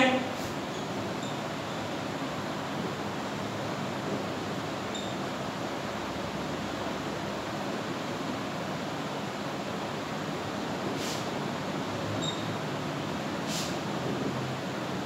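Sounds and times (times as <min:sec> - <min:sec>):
room noise hiss: 0:00.0 - 0:15.0
brief high squeak: 0:12.2 - 0:12.6.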